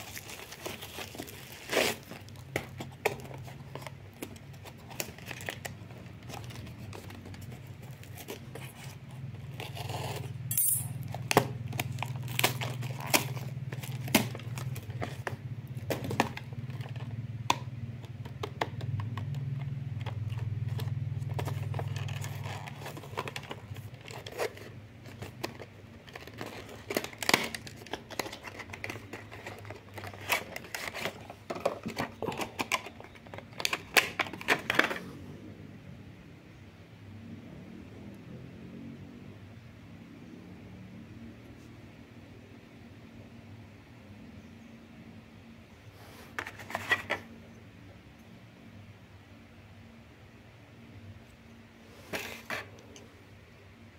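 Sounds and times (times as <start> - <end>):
cardboard and tape tearing: 0.0 - 10.4, 11.1 - 16.8, 20.7 - 35.1, 51.9 - 52.8
low steady hum: 0.0 - 53.9.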